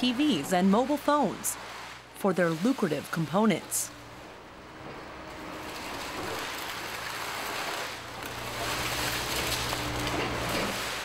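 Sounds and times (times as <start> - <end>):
low machine hum: 0.0 - 11.0
scrap rattling and spilling: 5.4 - 11.0.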